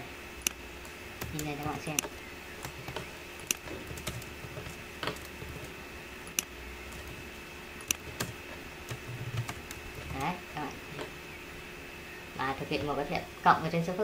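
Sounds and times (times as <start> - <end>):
faint electrical hum: 0.0 - 14.0
keyboard and mouse clicks: 1.2 - 7.2, 7.8 - 10.3.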